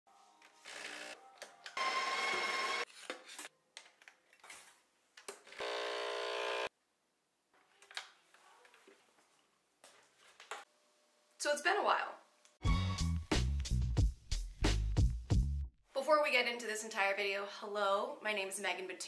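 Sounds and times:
espresso machine loud whirring: 0:05.6 - 0:06.7
espresso pump buzzing: 0:05.6 - 0:06.7.

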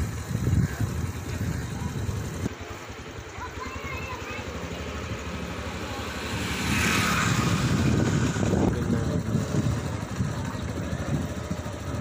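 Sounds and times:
motorcycle engine running: 0:00.0 - 0:12.0
rushing noise: 0:04.4 - 0:10.2.

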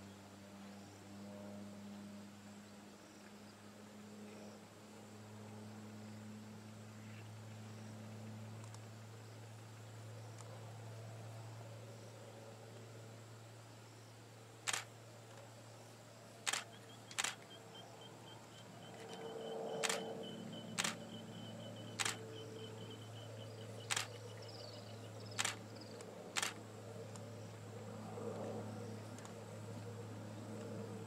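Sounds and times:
steady low hum: 0:00.0 - 0:31.0
camera shutter clicks: 0:14.7 - 0:14.9, 0:16.5 - 0:17.5, 0:19.8 - 0:20.1, 0:20.8 - 0:21.0, 0:22.0 - 0:22.2, 0:23.9 - 0:24.2, 0:25.4 - 0:25.6, 0:26.4 - 0:26.6.

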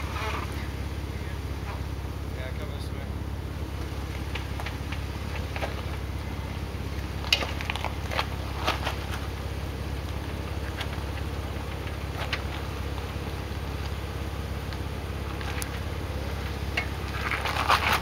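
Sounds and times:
car engine idling: 0:00.0 - 0:18.0
tyres crunching on rock: 0:03.6 - 0:18.0.

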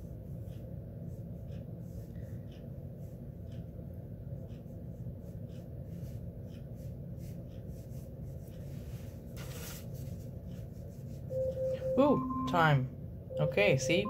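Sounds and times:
brush strokes on paper: 0:05.2 - 0:11.3.

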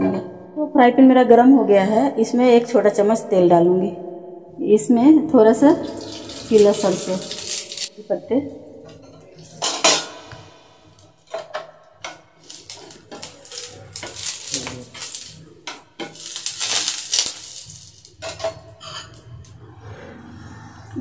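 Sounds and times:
utensils clinking against dishes: 0:08.9 - 0:19.5.

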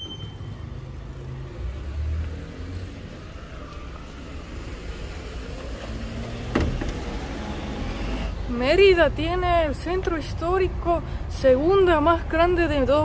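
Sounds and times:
street traffic rumble: 0:00.0 - 0:13.0.

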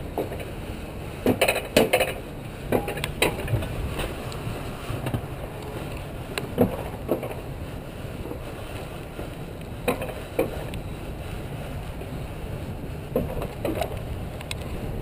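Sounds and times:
sled rumbling on metal rail: 0:00.0 - 0:15.0
wind on microphone: 0:00.0 - 0:15.0
sharp clacks and knocks: 0:01.2 - 0:03.7, 0:09.8 - 0:10.7.

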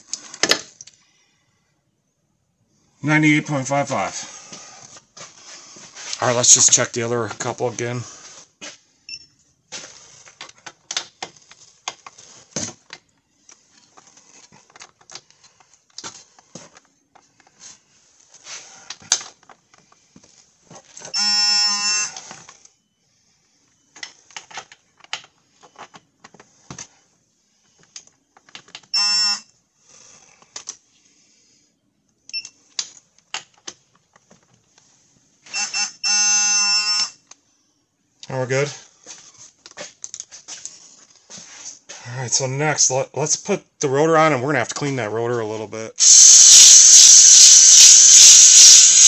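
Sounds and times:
torque wrench electronic beep: 0:21.1 - 0:22.2, 0:35.5 - 0:37.2, 0:46.0 - 0:49.0.

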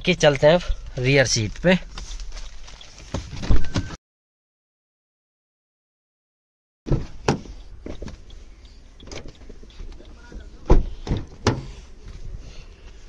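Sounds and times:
footsteps: 0:00.3 - 0:04.0
car door opening clunk: 0:06.9 - 0:08.2, 0:10.3 - 0:11.8.

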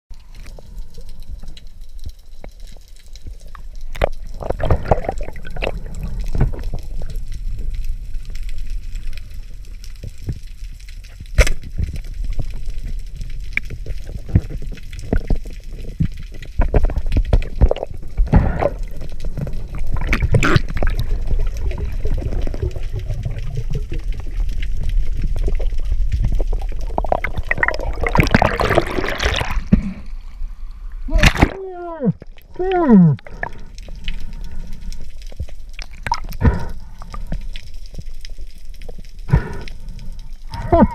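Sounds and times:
muffled underwater rumble: 0:00.1 - 0:40.9
water sloshing: 0:03.8 - 0:07.3, 0:13.7 - 0:30.4, 0:31.1 - 0:38.0
bubbling noise: 0:04.0 - 0:07.2, 0:14.1 - 0:30.0, 0:31.1 - 0:34.4, 0:35.8 - 0:37.3.

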